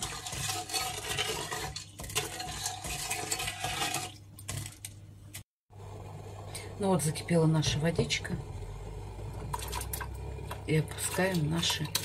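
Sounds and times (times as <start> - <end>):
metal spoon stirring in pot: 0.0 - 4.9, 9.3 - 12.0.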